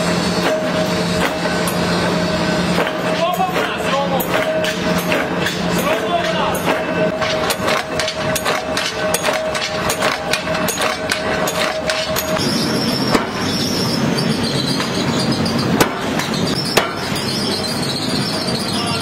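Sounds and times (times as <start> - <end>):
forge fire and blower rushing: 0.0 - 19.0
machine hum: 0.0 - 19.0.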